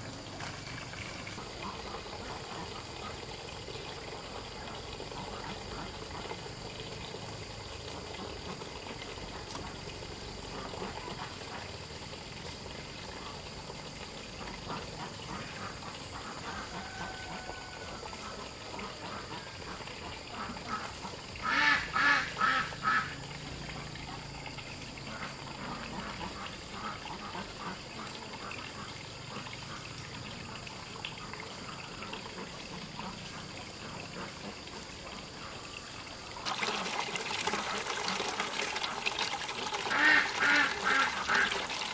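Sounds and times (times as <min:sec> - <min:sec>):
ducks quacking: 0:18.2 - 0:23.2, 0:25.1 - 0:29.9, 0:39.8 - 0:41.7.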